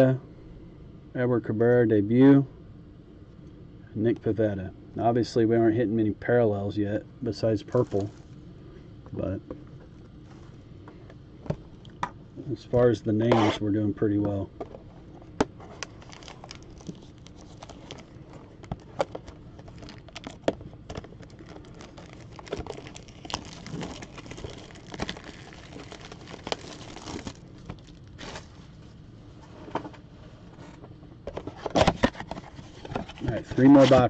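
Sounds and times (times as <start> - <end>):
cardboard box being torn open: 21.2 - 27.4.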